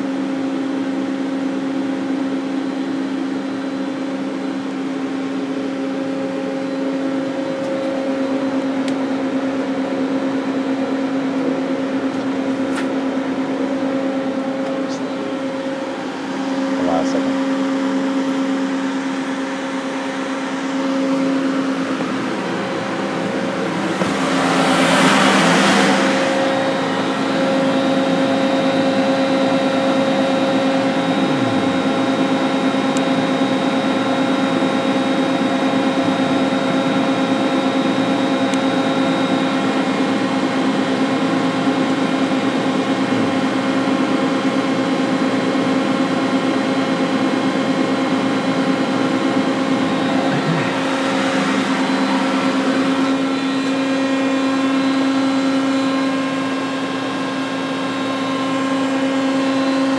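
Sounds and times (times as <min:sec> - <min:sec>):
machinery hum and whine: 0:00.0 - 0:59.9.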